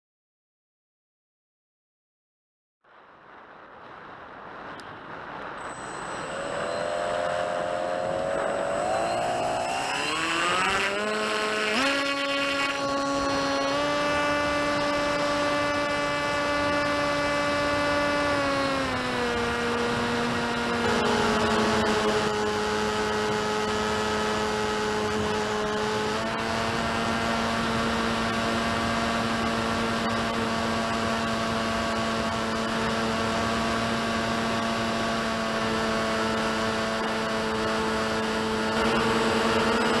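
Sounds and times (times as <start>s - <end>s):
steady hiss: 2.9s - 7.8s
electric motor propeller whine: 5.6s - 40.0s.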